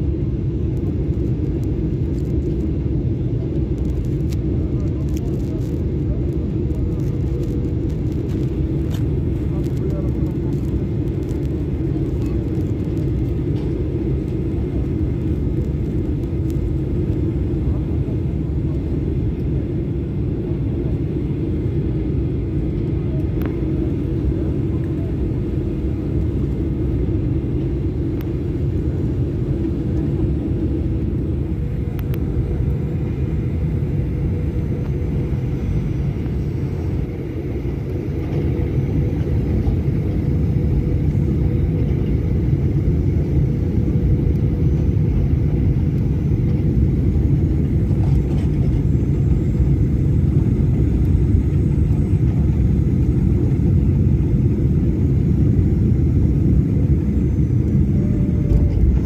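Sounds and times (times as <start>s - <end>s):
jet engines and airflow rumble: 0.0s - 59.0s
plane rolling on runway: 0.0s - 59.0s.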